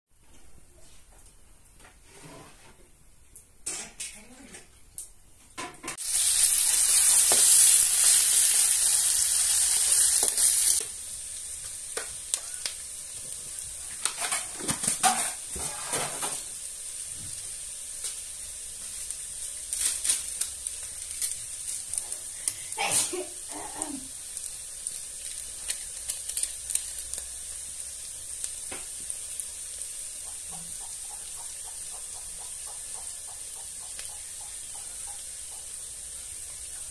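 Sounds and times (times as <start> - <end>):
utensil scraping a wok: 6.0 - 16.5
onions sizzling in hot oil: 6.0 - 36.9.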